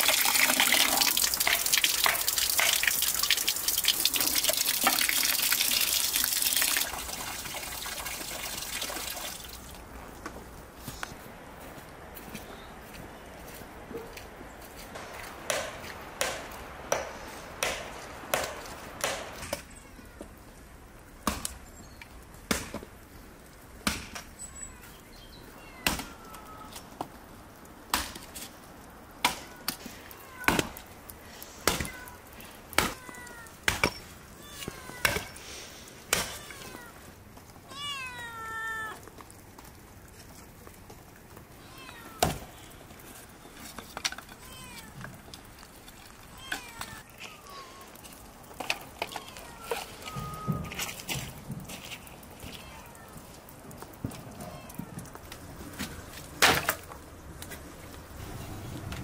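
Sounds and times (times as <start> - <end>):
hatchet chopping wood: 15.5 - 19.5
cat meowing: 25.5 - 26.8, 37.7 - 39.1, 44.4 - 45.0, 46.3 - 48.0, 49.1 - 50.8, 52.4 - 53.2.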